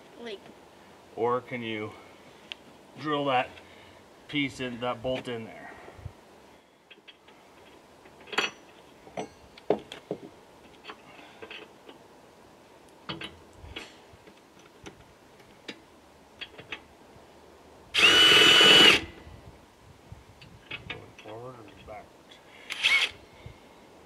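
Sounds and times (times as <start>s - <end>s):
power drill whining: 18.0s - 19.1s, 22.7s - 23.2s.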